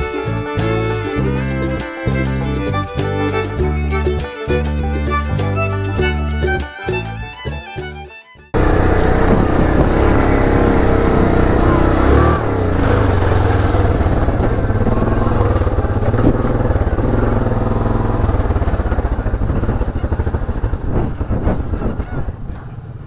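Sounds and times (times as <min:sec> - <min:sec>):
atv engine running: 0:08.6 - 0:23.0.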